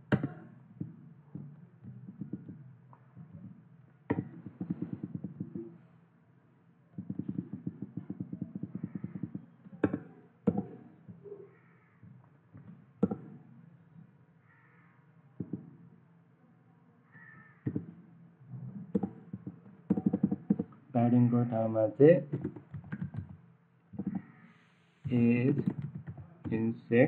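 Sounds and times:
faint animal calls: 7.2 - 10.0, 11.1 - 12.2, 14.4 - 15.1, 17.0 - 17.8, 24.0 - 24.8
keyboard typing: 18.9 - 20.8, 22.3 - 23.4, 25.1 - 26.5.

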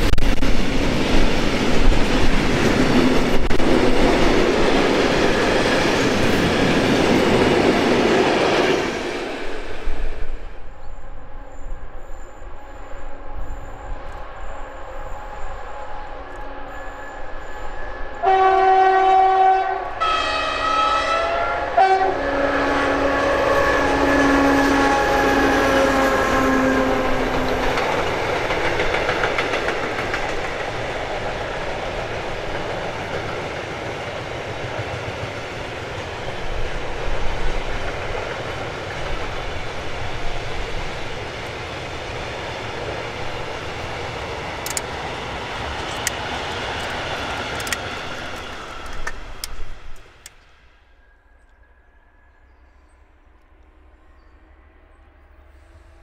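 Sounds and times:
diesel locomotive engine drone: 0.0 - 56.0
locomotive horn blasts: 18.1 - 27.5.

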